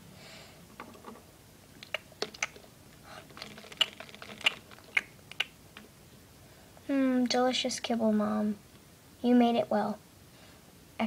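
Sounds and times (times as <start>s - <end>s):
plastic toys clicking on bowl: 1.8s - 5.9s.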